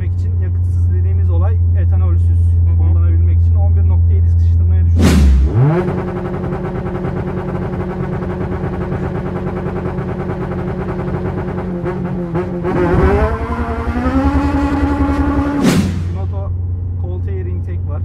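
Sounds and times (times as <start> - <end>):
car engine revving high: 4.9 - 16.5.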